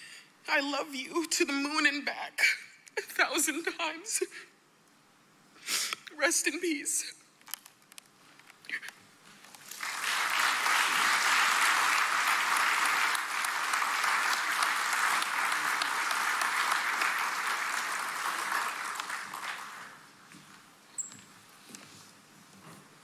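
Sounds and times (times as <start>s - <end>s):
audience applauding: 9.7s - 20.1s.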